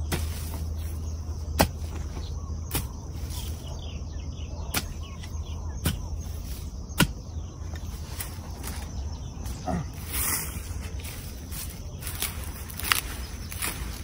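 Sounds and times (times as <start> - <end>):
hoe striking soil: 0.0 - 3.6, 4.7 - 8.8.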